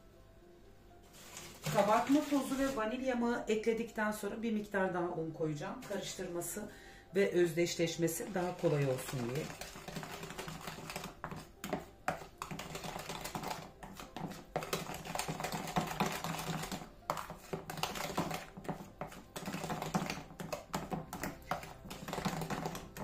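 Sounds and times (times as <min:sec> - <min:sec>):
whisk beating batter in dish: 0:07.9 - 0:23.0.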